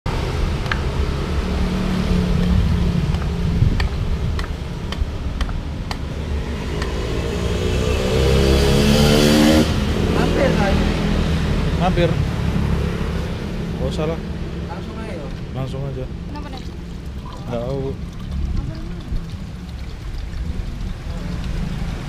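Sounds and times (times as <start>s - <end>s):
low traffic rumble: 0.1s - 22.0s
vehicle engine revving: 6.3s - 13.6s.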